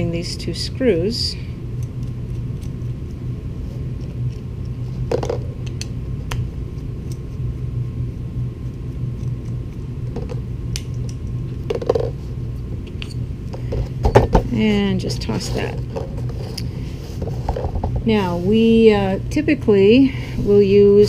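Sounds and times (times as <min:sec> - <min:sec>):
steady low hum: 0:00.0 - 0:21.0
rustling handling noises: 0:13.4 - 0:18.6.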